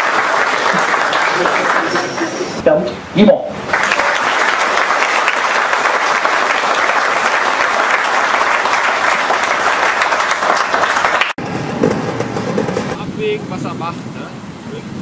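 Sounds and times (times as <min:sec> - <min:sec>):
audience clapping: 0:00.0 - 0:02.6, 0:03.6 - 0:11.4.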